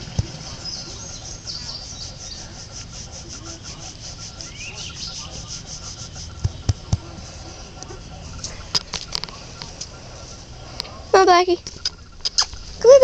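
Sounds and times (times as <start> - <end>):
thumps: 6.4 - 7.2.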